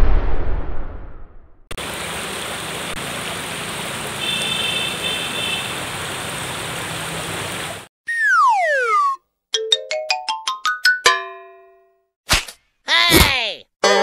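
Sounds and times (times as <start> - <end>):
rocky stream rushing: 1.8 - 7.9
loud falling whistle: 8.1 - 9.2.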